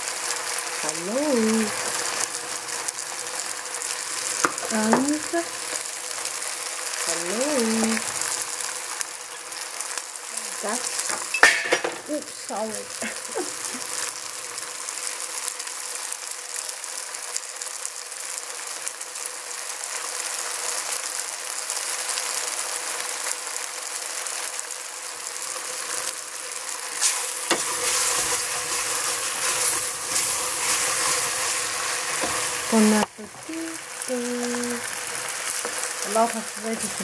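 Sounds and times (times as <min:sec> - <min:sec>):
pasta sizzling in a pot: 0:00.0 - 0:37.0
wooden spoon scraping a pot: 0:27.0 - 0:33.5.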